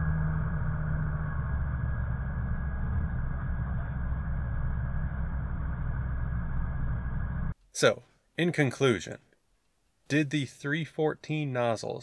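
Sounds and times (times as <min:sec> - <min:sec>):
road noise inside car: 0:00.0 - 0:07.6.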